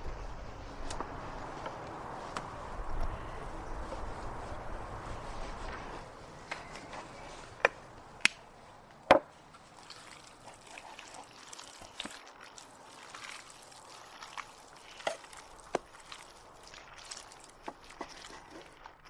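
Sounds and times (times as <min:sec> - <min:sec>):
wet squelches of meat: 0:09.6 - 0:19.0.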